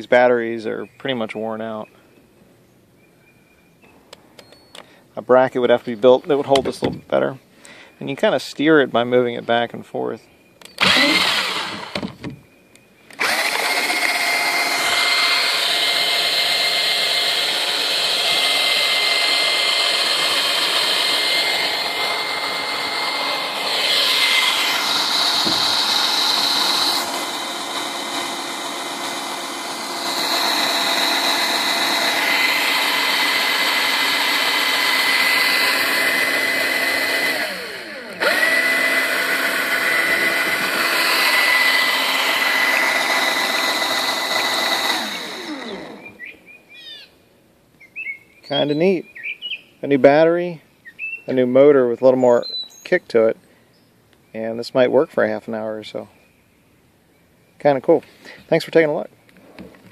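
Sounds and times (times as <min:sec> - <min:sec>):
propeller churning water: 0:10.8 - 0:12.0
cordless drill running: 0:10.8 - 0:12.2, 0:13.2 - 0:46.3.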